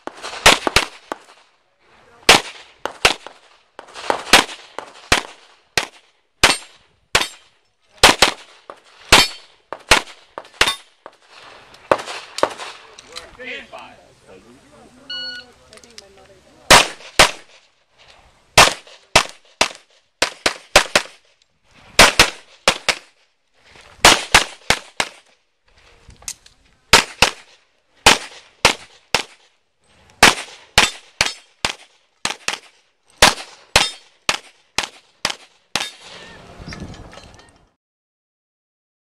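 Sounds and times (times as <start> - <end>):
handgun shots: 4.0 - 7.4, 9.1 - 10.9, 26.9 - 29.4, 30.2 - 36.0.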